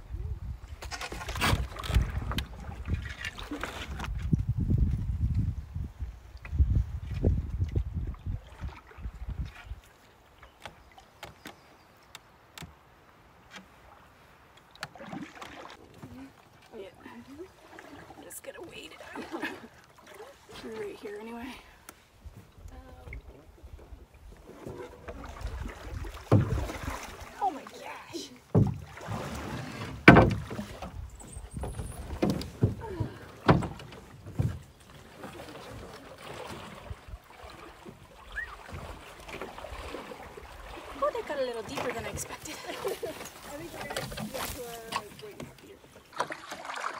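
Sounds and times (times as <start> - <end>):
water sounds: 0.0 - 4.5, 6.2 - 46.9
paddle knocking against rock: 26.0 - 27.1, 28.5 - 34.8
hollow knocks on canoe hull: 26.2 - 27.1, 28.5 - 30.9.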